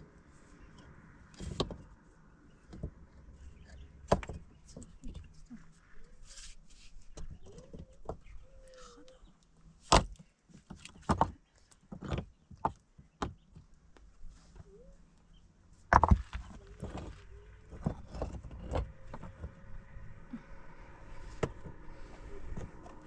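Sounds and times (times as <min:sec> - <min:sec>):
stones clacking together: 0:15.9 - 0:19.5.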